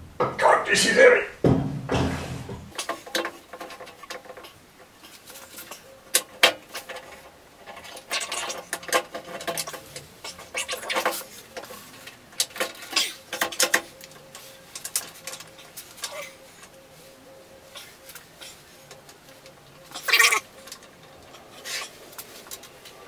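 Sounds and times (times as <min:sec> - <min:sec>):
metal clunks and scraping: 0:01.4 - 0:16.8.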